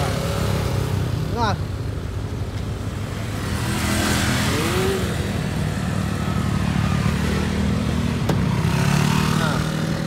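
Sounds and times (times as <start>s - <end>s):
motorcycle engines running: 0.0s - 10.0s
engine revving: 3.2s - 10.0s.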